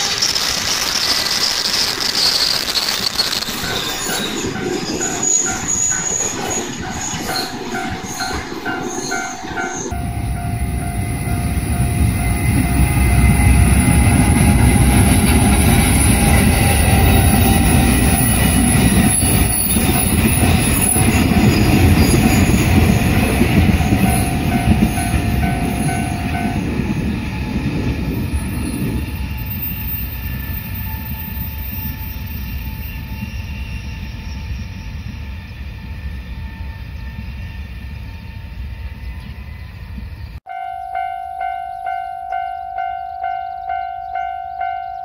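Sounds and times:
freight train wheels rumbling: 0:00.0 - 0:45.0.

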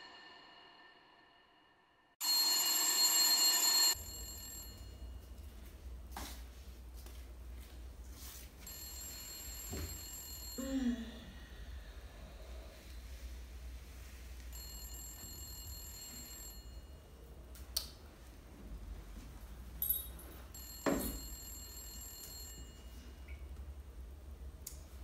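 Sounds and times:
desk telephone ringing: 0:02.2 - 0:04.9, 0:14.6 - 0:16.9, 0:20.6 - 0:23.0.

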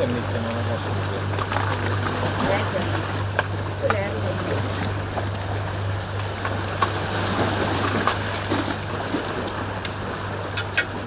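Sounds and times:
outdoor noise: 0:00.0 - 0:11.0
steady low hum: 0:00.0 - 0:11.0.

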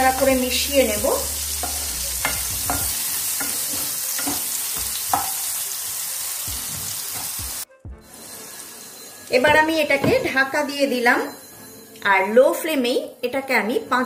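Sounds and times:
eggplant sizzling in oil: 0:00.0 - 0:09.4.

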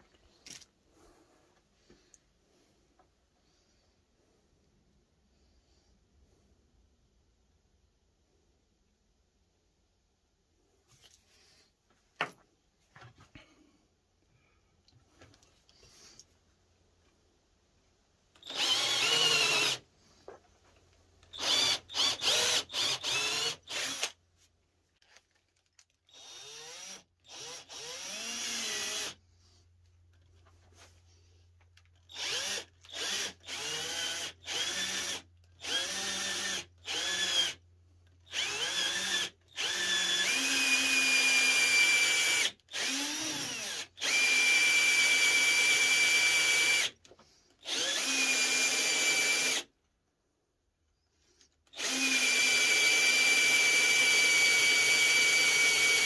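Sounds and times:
cordless drill boring into wood: 0:18.4 - 0:19.8, 0:21.3 - 0:24.2, 0:26.1 - 0:29.2, 0:32.1 - 0:37.6, 0:38.2 - 0:47.0, 0:47.6 - 0:49.7, 0:51.6 - 0:56.0.

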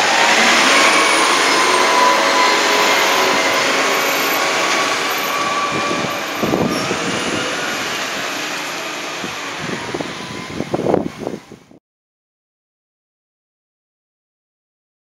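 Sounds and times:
garbage truck driving off: 0:00.0 - 0:11.7.

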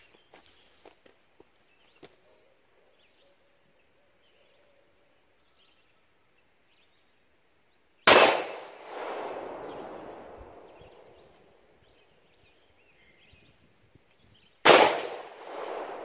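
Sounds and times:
pistol shot with echo: 0:08.1 - 0:11.4, 0:14.6 - 0:16.0.

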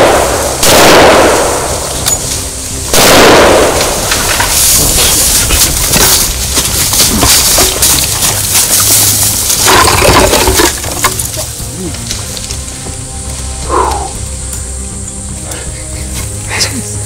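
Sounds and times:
rifle shots with echo: 0:00.0 - 0:02.3, 0:02.9 - 0:04.4.

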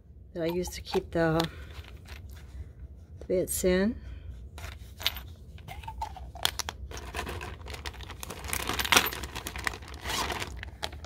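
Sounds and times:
plastic packaging crinkling: 0:05.8 - 0:11.0.

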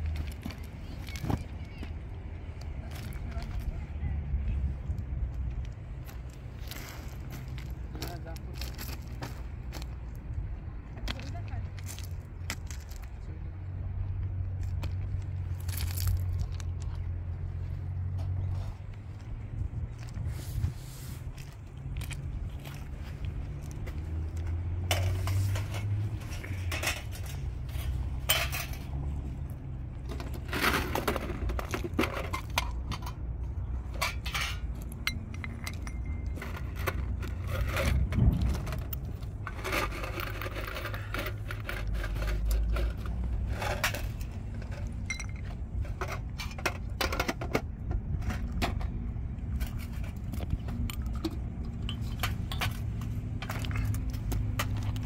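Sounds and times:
steady low rumble: 0:00.0 - 0:55.0
hard objects clinking and scraping: 0:20.0 - 0:55.0.

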